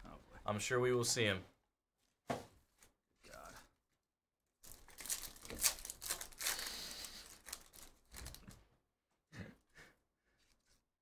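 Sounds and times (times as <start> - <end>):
foil wrapper tearing and crinkling: 4.6 - 8.5.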